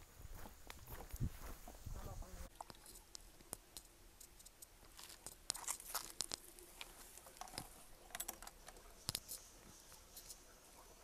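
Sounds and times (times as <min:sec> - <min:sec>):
footsteps crunching on gravel and leaves: 0:00.2 - 0:02.2, 0:04.9 - 0:07.3.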